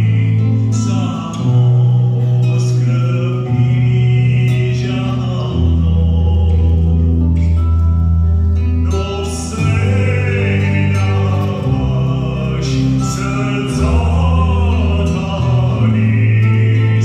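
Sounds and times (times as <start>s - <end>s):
man singing into a microphone: 0.0s - 7.6s, 8.9s - 17.0s
instrumental backing with bass: 0.0s - 17.0s.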